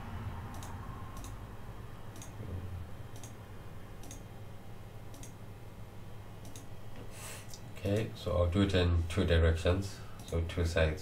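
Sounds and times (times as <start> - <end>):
low steady hum: 0.0 - 11.0
computer mouse clicking: 0.5 - 1.4, 2.1 - 2.4, 3.1 - 3.4, 4.0 - 4.3, 5.1 - 5.4, 6.4 - 6.7, 10.2 - 10.4.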